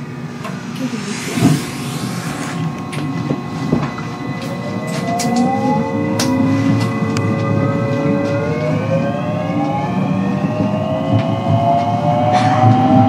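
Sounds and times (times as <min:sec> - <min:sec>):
electric train motor whine: 0:00.0 - 0:11.5
train rumble: 0:00.0 - 0:13.0.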